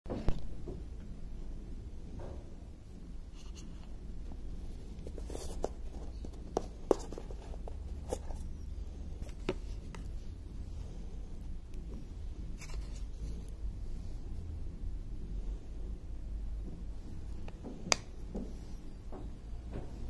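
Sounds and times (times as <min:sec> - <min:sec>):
low steady hum: 0:00.1 - 0:20.0
scratchy plastic rubbing: 0:03.3 - 0:13.6.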